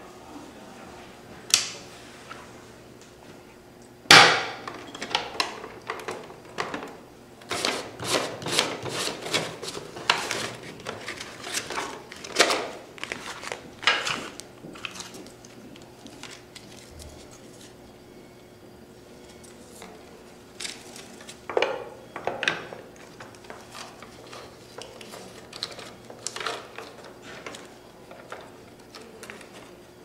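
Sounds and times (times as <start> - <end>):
paper rustling: 7.5 - 17.8, 23.0 - 29.8.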